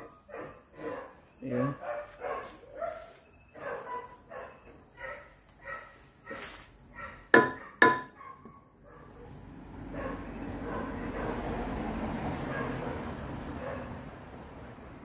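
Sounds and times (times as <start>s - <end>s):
wooden block knocking on metal: 7.3s - 8.2s.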